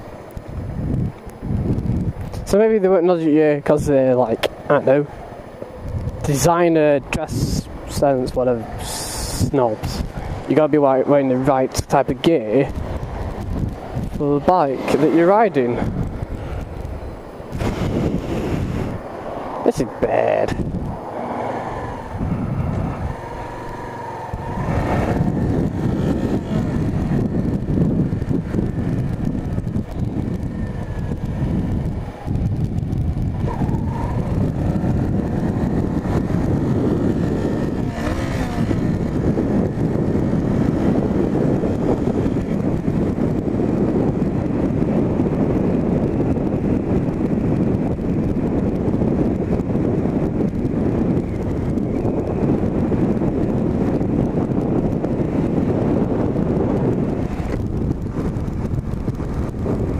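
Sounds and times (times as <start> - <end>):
wind noise on microphone: 0.0 - 59.9
motorcycle engine running: 22.1 - 59.9.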